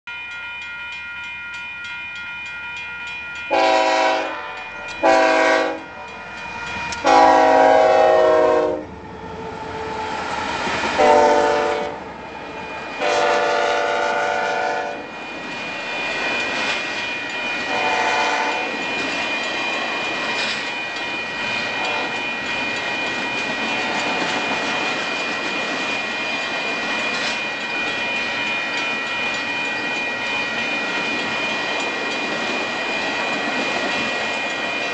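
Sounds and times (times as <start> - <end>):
train wheels clacking on rails: 2.8 - 34.9
locomotive air horn blasts: 3.5 - 6.3, 7.0 - 8.9, 11.0 - 12.0, 13.0 - 15.0, 17.7 - 18.7, 21.8 - 22.1.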